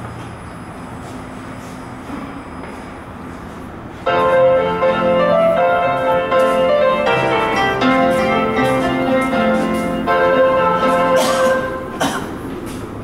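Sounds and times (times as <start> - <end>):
piano music: 4.0 - 12.6.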